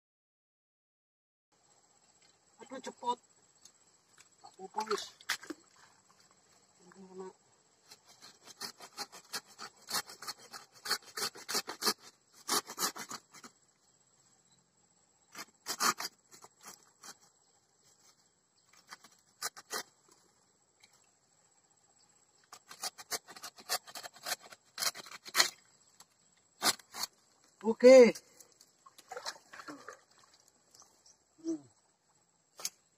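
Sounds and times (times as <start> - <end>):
insect buzz: 1.6 - 32.9
machete chopping into earth: 22.6 - 25.6, 26.6 - 27.1, 32.6 - 32.8.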